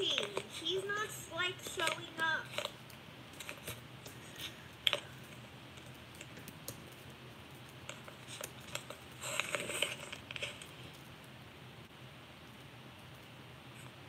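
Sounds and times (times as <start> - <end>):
rustling: 0.0 - 11.2.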